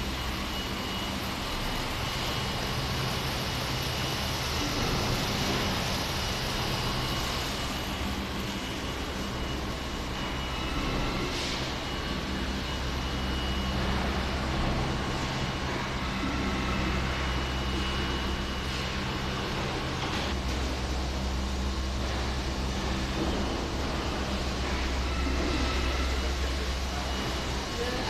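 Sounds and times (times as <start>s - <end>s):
machinery low hum: 0.0s - 28.0s
thin high whine: 21.2s - 28.0s.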